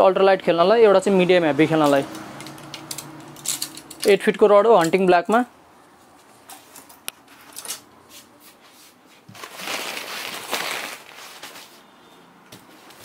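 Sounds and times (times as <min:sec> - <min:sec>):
fabric rustling: 0:06.1 - 0:11.9.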